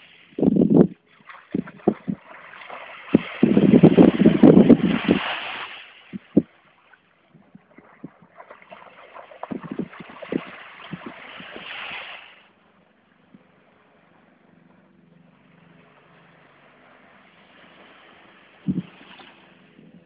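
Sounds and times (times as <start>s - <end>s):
wind gusting on microphone: 0.3s - 2.4s, 3.0s - 6.5s, 9.4s - 11.8s, 18.6s - 19.0s.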